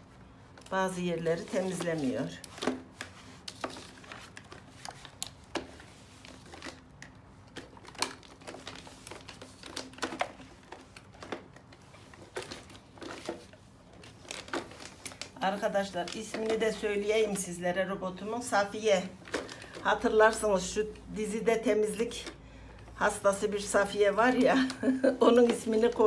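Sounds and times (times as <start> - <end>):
paper rustling: 1.2 - 17.4.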